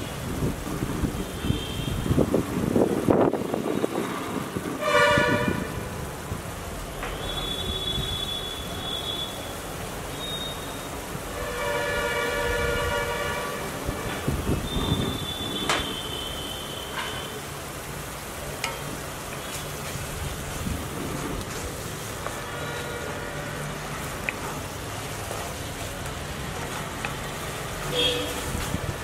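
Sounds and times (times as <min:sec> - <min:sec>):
masala sizzling in a pan: 0:05.9 - 0:29.0.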